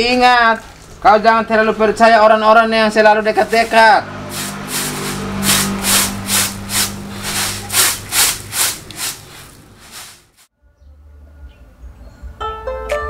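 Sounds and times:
rice swishing in bamboo tray: 0:03.4 - 0:10.5.

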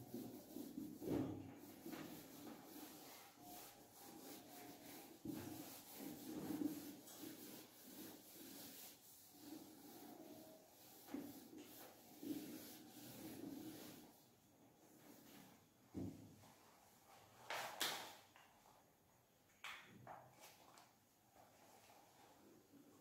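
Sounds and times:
eraser rubbing on whiteboard: 0:00.0 - 0:14.2.

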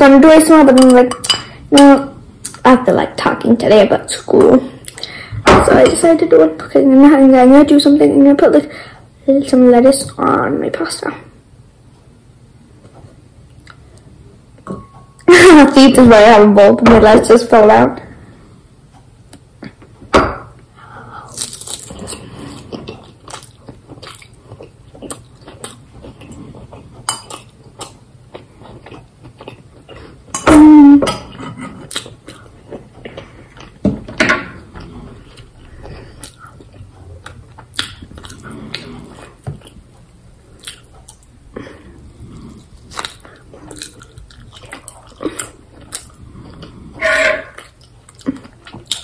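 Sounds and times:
chewing and crunching: 0:21.3 - 0:30.4, 0:31.2 - 0:33.8, 0:34.6 - 0:49.0
fork scraping on a plate: 0:46.9 - 0:47.7.

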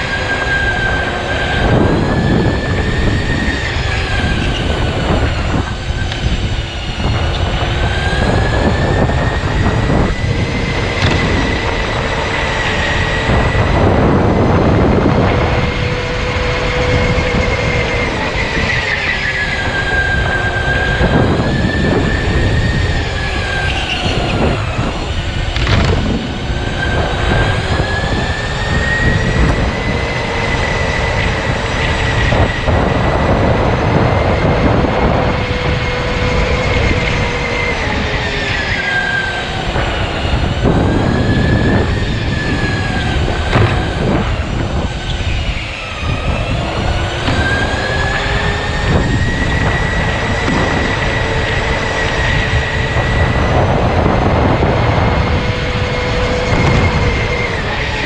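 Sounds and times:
electric motor whining: 0:00.0 - 0:58.0
rough rumble of running noise: 0:00.0 - 0:58.0.

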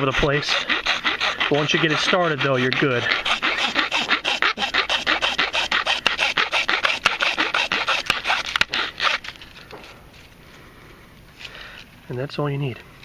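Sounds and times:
file rasping on plastic pipe: 0:00.0 - 0:09.3.

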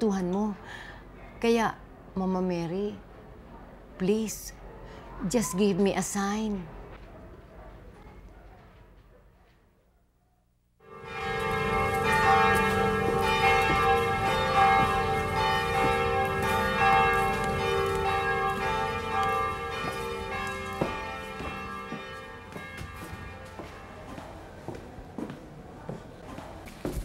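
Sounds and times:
church bells ringing: 0:10.8 - 0:25.4.

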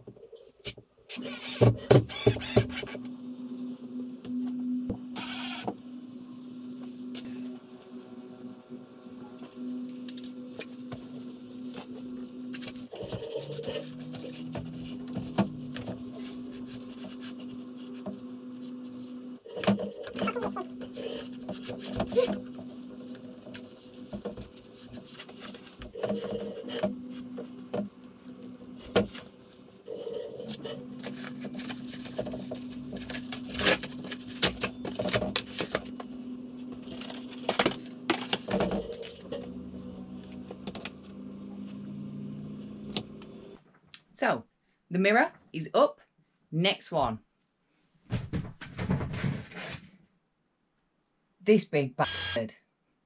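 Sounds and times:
mirror frame knocking and scraping wall: 0:48.1 - 0:49.9.

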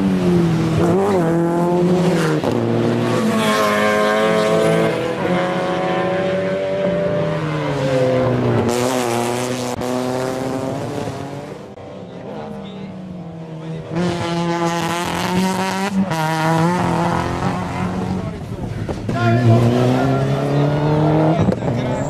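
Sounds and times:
race cars accelerating past: 0:00.0 - 0:22.0.

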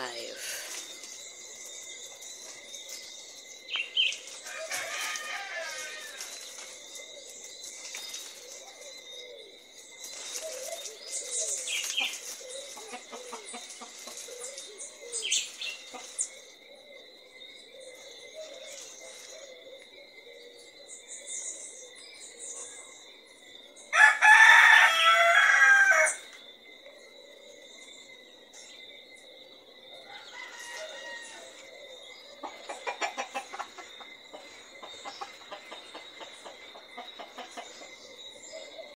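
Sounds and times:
rooster crowing: 0:04.4 - 0:06.4, 0:23.9 - 0:26.3, 0:30.0 - 0:31.6.

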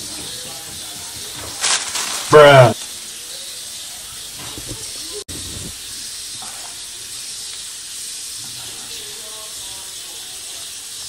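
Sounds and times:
background hiss: 0:00.0 - 0:11.0
paper wrapper handling: 0:01.6 - 0:02.4.

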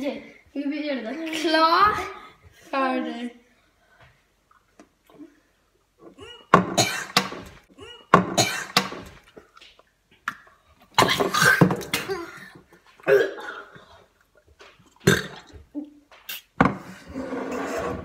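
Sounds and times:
boys coughing and gagging: 0:06.0 - 0:09.0, 0:11.0 - 0:14.0, 0:15.0 - 0:16.0.

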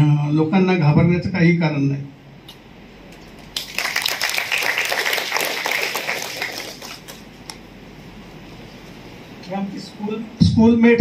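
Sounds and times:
audience applauding: 0:03.5 - 0:07.4.

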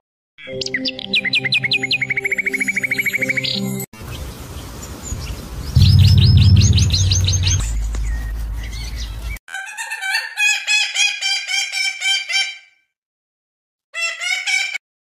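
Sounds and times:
low steady rumble: 0:05.8 - 0:09.3.

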